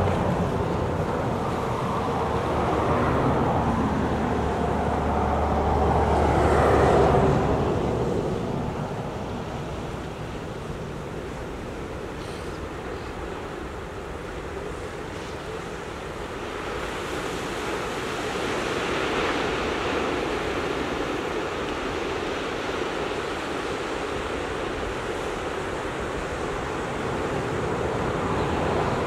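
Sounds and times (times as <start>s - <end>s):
ocean surf breaking on rocks: 0.0s - 29.0s.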